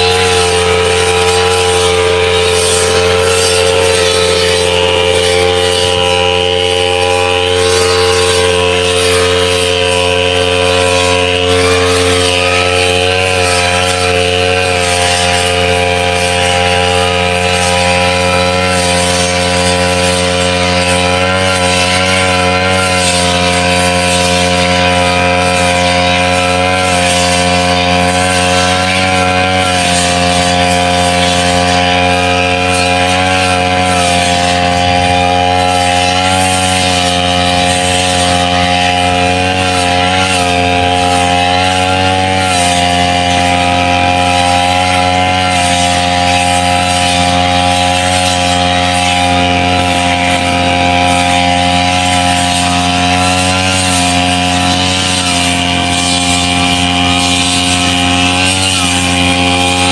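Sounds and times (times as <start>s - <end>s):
brush cutter engine running: 0.0s - 59.9s.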